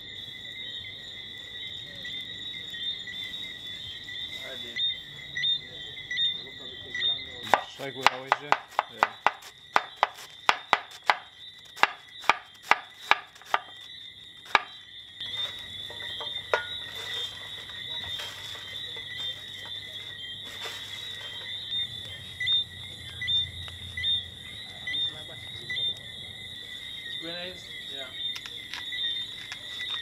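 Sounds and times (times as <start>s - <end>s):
knife chopping on wooden board: 7.5s - 13.7s
vegetables rustling by hand: 15.2s - 21.7s.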